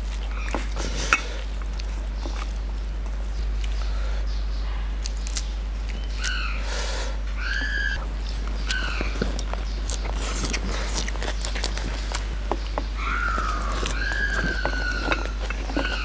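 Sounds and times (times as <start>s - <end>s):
leafy greens tearing: 0.0s - 3.9s, 5.0s - 6.6s, 7.6s - 16.0s
animal calling: 6.0s - 16.0s.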